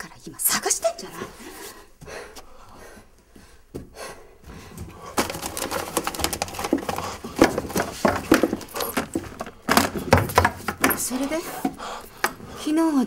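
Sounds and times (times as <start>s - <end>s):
objects clattering in desk drawers: 5.1s - 12.4s.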